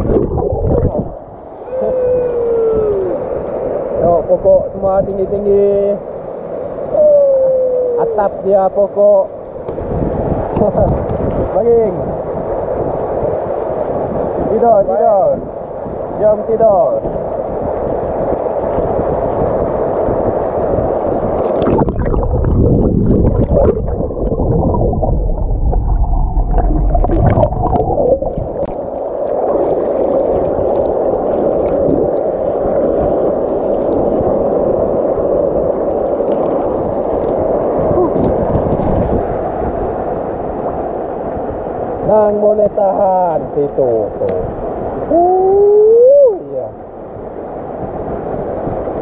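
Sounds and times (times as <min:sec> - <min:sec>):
heavy low rumbling: 0:21.6 - 0:28.9.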